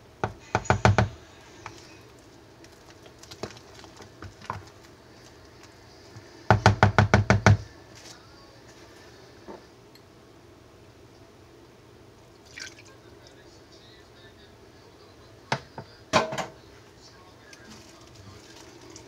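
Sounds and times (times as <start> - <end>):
spatula knocking plastic bowl: 6.5 - 7.6.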